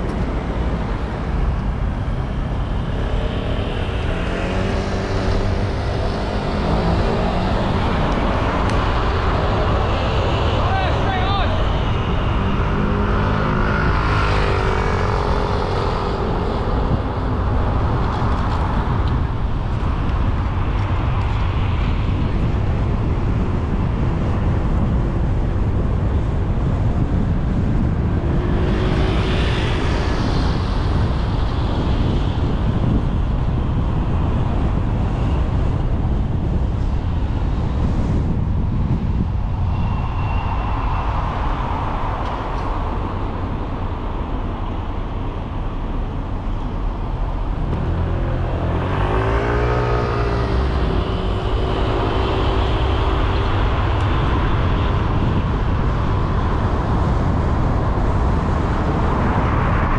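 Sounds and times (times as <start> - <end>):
car driving rumble: 0.0 - 59.9
engine rising and falling in pitch: 1.6 - 17.3, 47.4 - 54.5.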